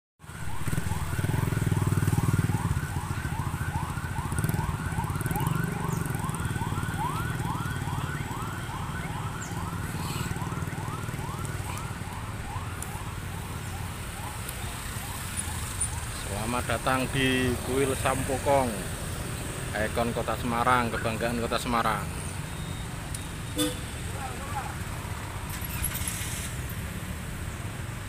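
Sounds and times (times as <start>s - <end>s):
police siren yelping: 0.2s - 19.0s.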